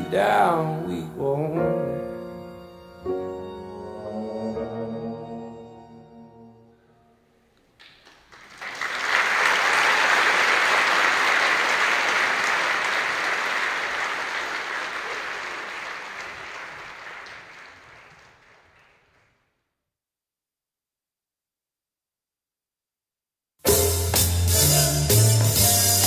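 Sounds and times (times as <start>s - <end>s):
audience applauding: 7.8s - 19.5s.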